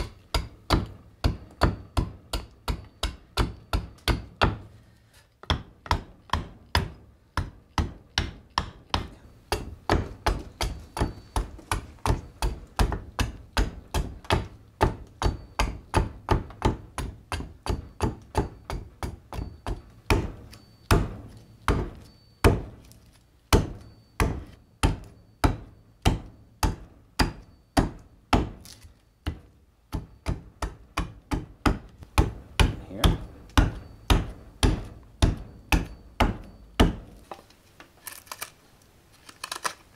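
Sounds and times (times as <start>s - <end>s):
hatchet chopping wood: 0.0s - 4.7s, 5.4s - 37.4s.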